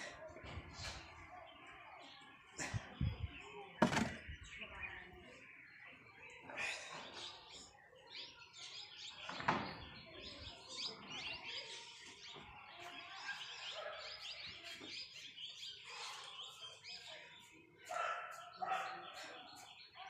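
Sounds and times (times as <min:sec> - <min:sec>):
small birds chirping: 0:00.0 - 0:20.0
thump: 0:03.8 - 0:04.2.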